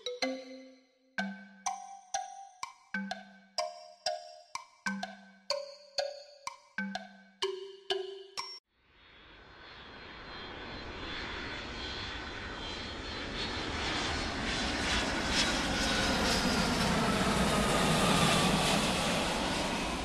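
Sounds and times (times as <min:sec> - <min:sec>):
airplane engines running: 0:09.2 - 0:20.0.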